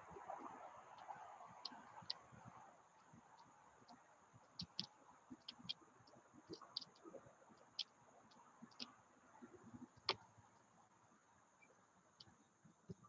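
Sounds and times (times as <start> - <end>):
birds pecking at seed: 0.4 - 10.3.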